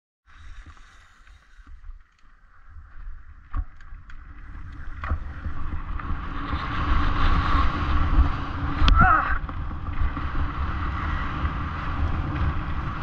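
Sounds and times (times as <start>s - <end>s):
bike tyre rumble on gravel: 0.3s - 13.0s
wind buffeting microphone: 0.4s - 13.0s
bike clicks and knocks: 3.0s - 6.1s.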